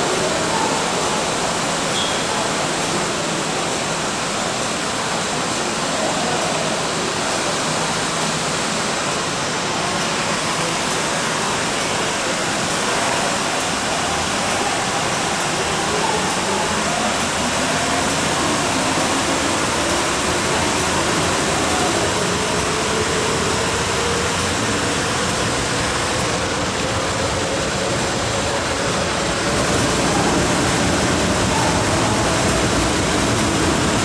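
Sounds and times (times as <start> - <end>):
train wheels rumbling on rail: 9.0 - 34.0.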